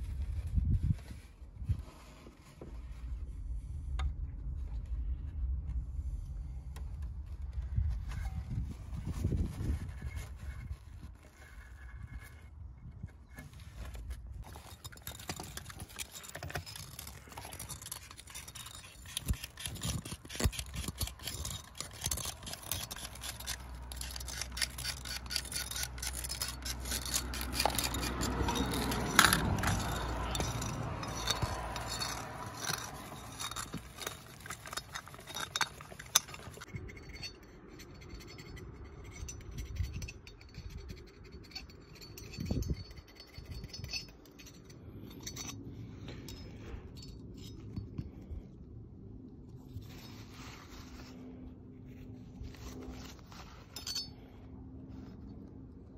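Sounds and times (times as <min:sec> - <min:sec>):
scraping carbon deposits: 0:04.4 - 0:36.8
small metallic clicks and knocks: 0:13.3 - 0:48.4.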